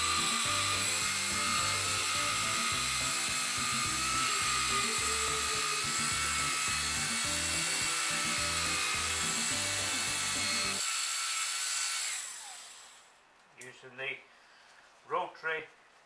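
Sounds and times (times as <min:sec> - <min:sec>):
rotary polisher whining: 0:00.0 - 0:13.1.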